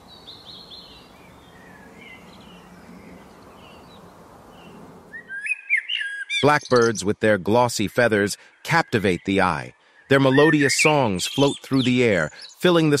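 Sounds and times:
outdoor hiss: 0:00.0 - 0:05.3
blackbird singing: 0:00.0 - 0:13.0
faint birdsong chirps: 0:00.0 - 0:13.0.

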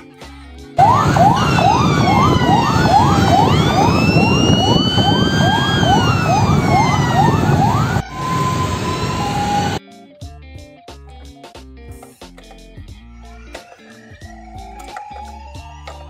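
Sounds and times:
emergency siren yelp and wail: 0:00.8 - 0:09.8, 0:13.1 - 0:16.0.

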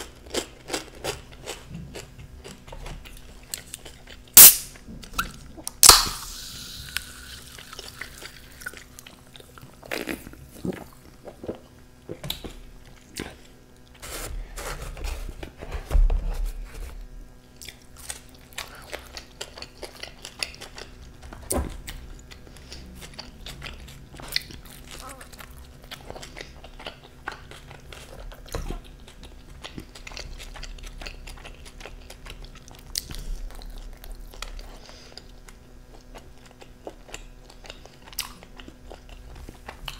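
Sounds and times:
biting and chewing food: 0:00.0 - 0:06.1, 0:17.5 - 0:39.9
can ring-pull pop: 0:04.4 - 0:04.7, 0:05.8 - 0:06.4.

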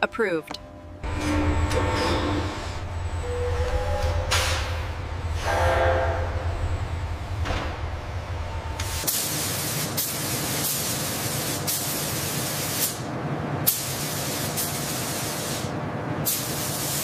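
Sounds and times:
low factory rumble: 0:00.0 - 0:17.0
spray gun hissing: 0:09.0 - 0:13.0, 0:13.7 - 0:15.7, 0:16.3 - 0:17.0.

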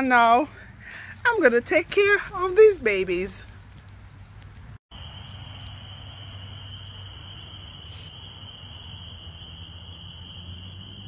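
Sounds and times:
crickets trilling: 0:04.9 - 0:11.0.

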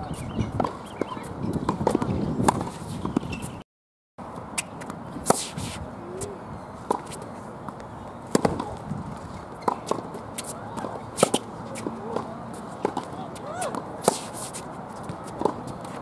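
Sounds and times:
racket hitting tennis ball: 0:00.6 - 0:03.5, 0:04.6 - 0:06.3, 0:06.9 - 0:07.3, 0:08.3 - 0:08.8, 0:09.6 - 0:16.0
ball bouncing on hard court: 0:08.3 - 0:08.8.

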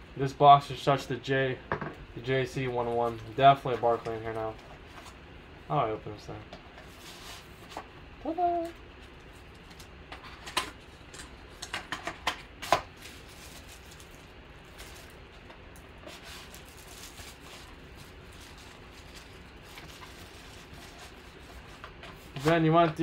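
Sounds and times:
packaging clicks and crinkles: 0:11.1 - 0:22.6.

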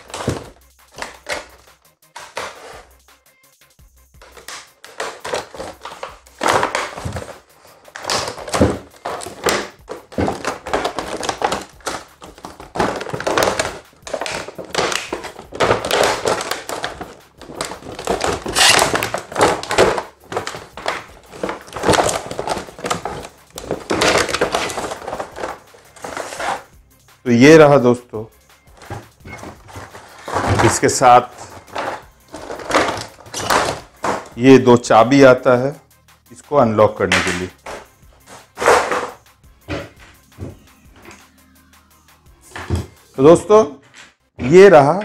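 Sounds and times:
plastic packaging crackling: 0:04.2 - 0:26.7, 0:28.7 - 0:34.5.

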